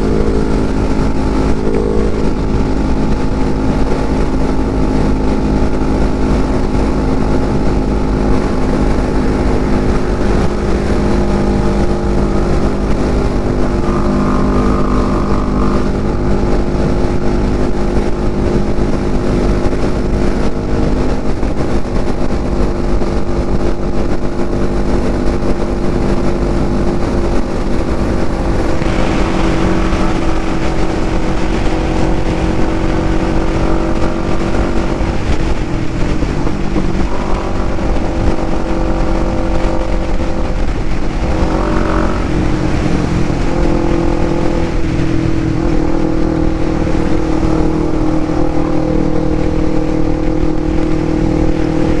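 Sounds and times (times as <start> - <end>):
motorcycle engine running: 0.0 - 52.0
wind noise on microphone: 0.0 - 52.0.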